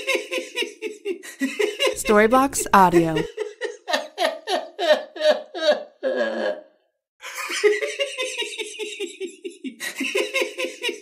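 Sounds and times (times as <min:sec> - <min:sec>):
rhythmic laughter: 0:07.2 - 0:11.0.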